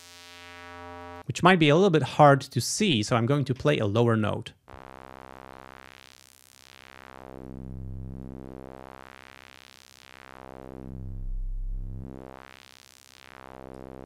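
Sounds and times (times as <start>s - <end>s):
filtered synthesizer note sweeping: 4.8s - 14.0s.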